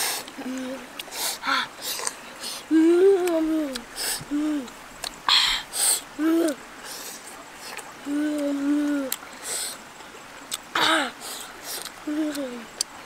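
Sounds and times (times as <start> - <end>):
boy humming: 0.0 - 6.6, 8.0 - 9.2, 10.8 - 12.7
chewing and smacking: 10.0 - 10.7, 11.6 - 13.0.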